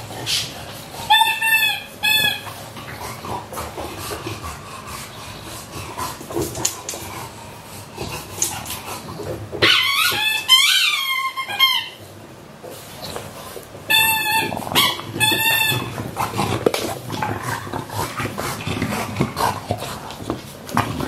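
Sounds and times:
squeaky rubber toy squealing: 1.1 - 2.5, 9.6 - 12.0, 13.9 - 16.0.

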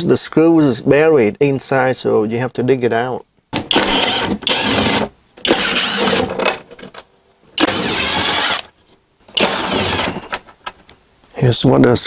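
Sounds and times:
cordless driver running: 3.7 - 6.3, 7.6 - 8.7, 9.4 - 10.2.

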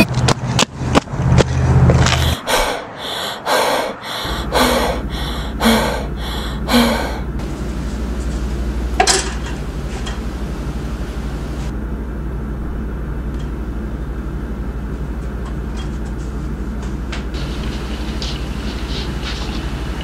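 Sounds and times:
low rumbling drone: 1.4 - 14.9.

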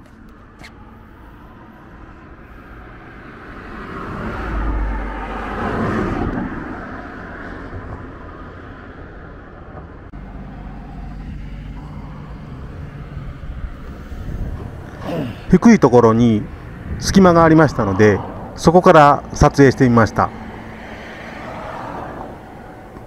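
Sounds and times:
vehicle passing by: 0.1 - 23.0
engine humming: 8.9 - 23.0.

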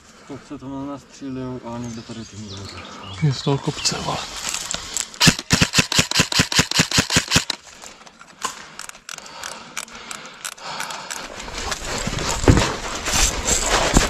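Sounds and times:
airsoft rifle rapid fire: 5.2 - 7.6.

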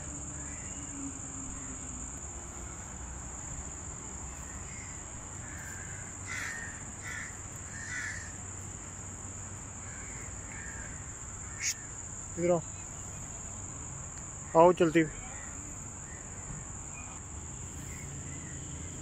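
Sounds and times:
high-pitched insect drone: 0.0 - 19.0
bird calls: 9.8 - 12.0.

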